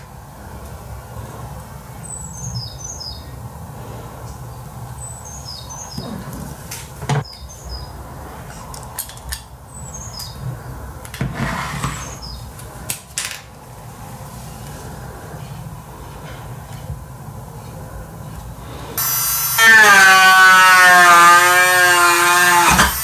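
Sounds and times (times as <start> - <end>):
bird chirping: 2.0 - 3.4, 4.5 - 6.3, 7.2 - 8.0, 9.7 - 10.5.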